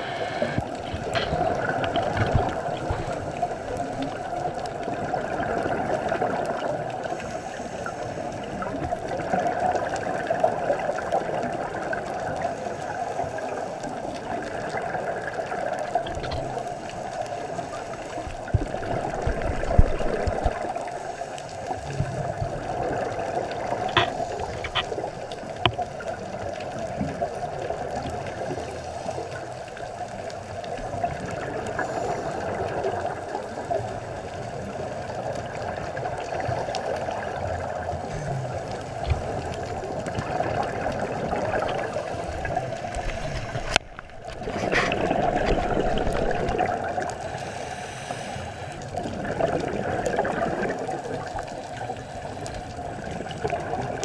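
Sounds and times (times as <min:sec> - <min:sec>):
underwater regulator breathing bubbles: 0:00.0 - 0:04.6, 0:23.5 - 0:25.1, 0:38.0 - 0:51.3.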